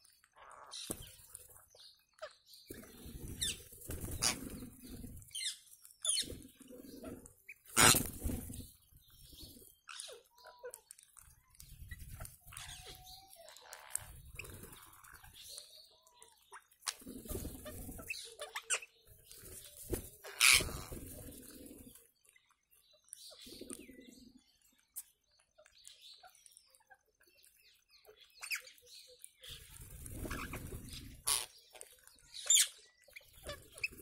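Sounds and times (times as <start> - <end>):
parakeets chirping and squawking: 0.0 - 22.0, 28.0 - 34.0
wings flapping: 2.7 - 9.6, 13.9 - 15.5, 16.8 - 22.0, 29.5 - 31.5.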